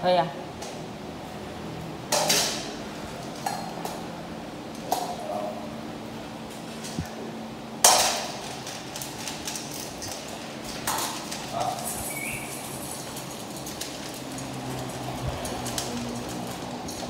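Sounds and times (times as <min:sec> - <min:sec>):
metal bowls clanking on tiled floor: 0:02.1 - 0:02.7, 0:07.8 - 0:17.0.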